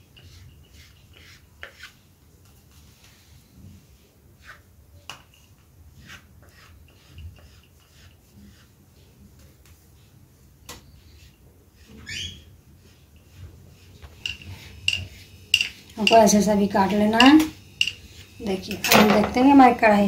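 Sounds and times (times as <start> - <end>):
knife tapping and scraping wood: 14.0 - 19.4.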